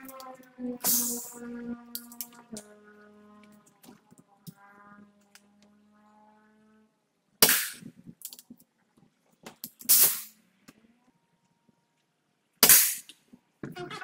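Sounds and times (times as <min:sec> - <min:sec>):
air rifle shots: 0:07.4 - 0:07.9, 0:09.8 - 0:10.4, 0:12.6 - 0:13.1.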